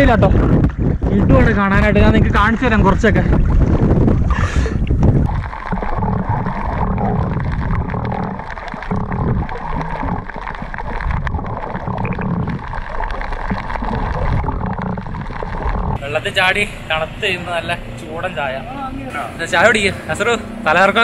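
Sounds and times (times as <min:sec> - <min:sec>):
muffled underwater sea sound: 0:00.0 - 0:16.1
faint underwater clicks: 0:03.3 - 0:16.0.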